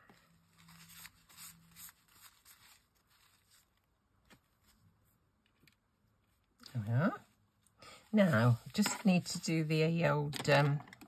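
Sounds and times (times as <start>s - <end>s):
paper towel rustling: 0.0s - 5.2s, 7.9s - 9.9s.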